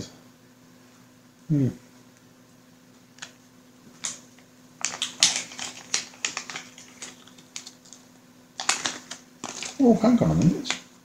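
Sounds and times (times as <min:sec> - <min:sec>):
small plastic parts clicking: 0:04.8 - 0:08.0, 0:08.6 - 0:09.8.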